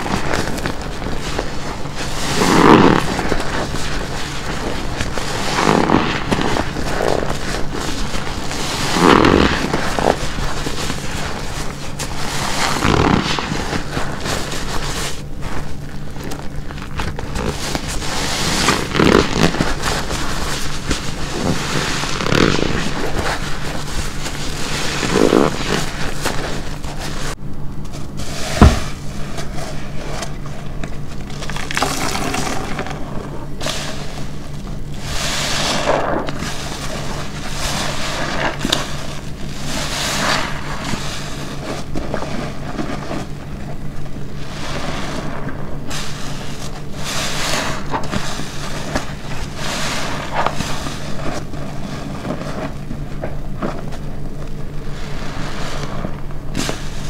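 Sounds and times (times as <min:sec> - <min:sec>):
sponge squeezing: 0:00.0 - 0:27.4, 0:28.0 - 0:57.0.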